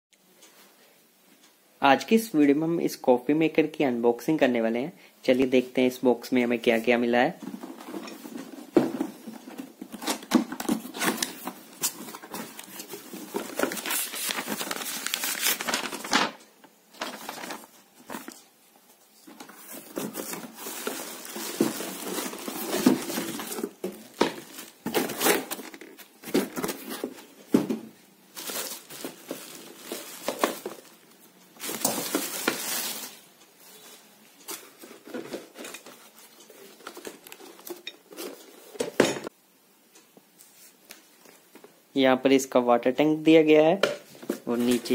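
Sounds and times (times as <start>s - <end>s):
cardboard and plastic rustling: 7.3s - 39.2s, 43.8s - 44.9s.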